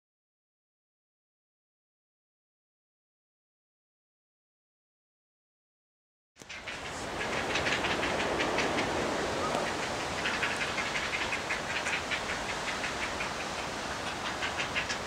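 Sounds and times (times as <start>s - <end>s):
heron chicks clicking calls: 6.4s - 15.0s
steady hiss: 6.4s - 15.0s.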